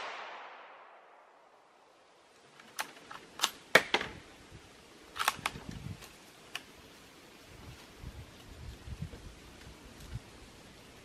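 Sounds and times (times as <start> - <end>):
rifle bolt metallic clicks: 2.6 - 4.0, 5.1 - 5.6.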